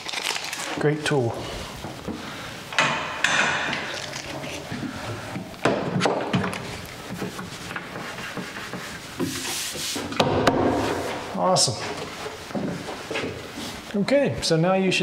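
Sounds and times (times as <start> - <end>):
knocks on wooden cabinets: 10.2 - 11.0.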